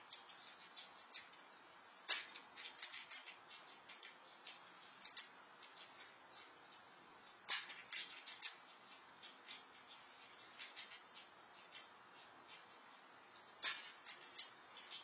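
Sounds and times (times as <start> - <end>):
squirrel chewing food: 0.0 - 15.0.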